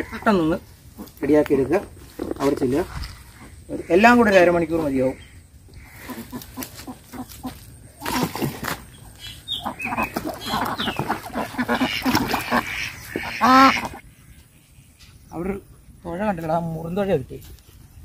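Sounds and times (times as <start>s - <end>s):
ducks quacking: 0.0s - 1.2s, 3.2s - 8.6s, 9.2s - 14.1s.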